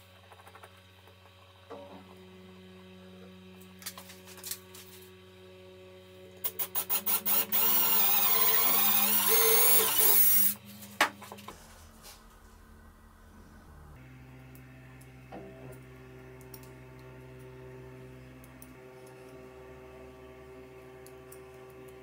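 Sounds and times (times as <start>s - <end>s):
cordless drill whining: 6.5s - 10.6s.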